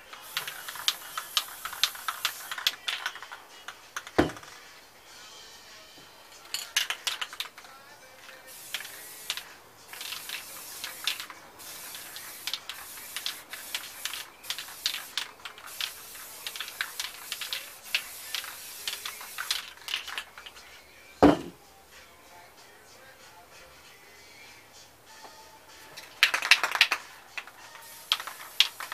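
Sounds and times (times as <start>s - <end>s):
spray paint hissing: 0.0s - 4.6s, 6.5s - 20.6s, 26.0s - 28.9s
hard knock: 21.2s - 21.6s.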